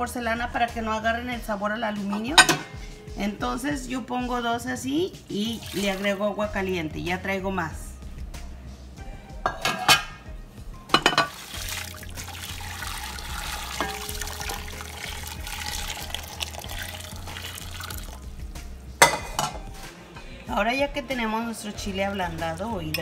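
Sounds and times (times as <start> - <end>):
water pouring into metal pot: 5.5 - 6.2, 11.0 - 18.3.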